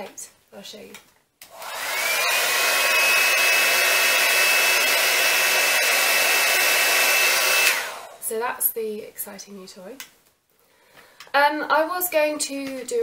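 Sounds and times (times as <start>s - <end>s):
hot-air brush motor whining: 1.5s - 8.2s.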